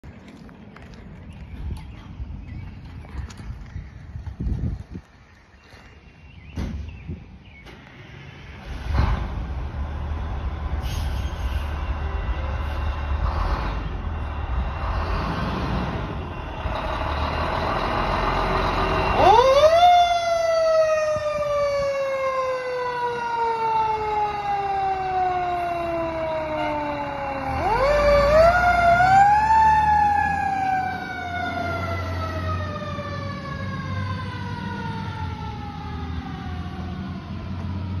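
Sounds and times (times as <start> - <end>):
fire truck engine rumbling: 0.0 - 38.0
mechanical siren wailing: 18.8 - 38.0.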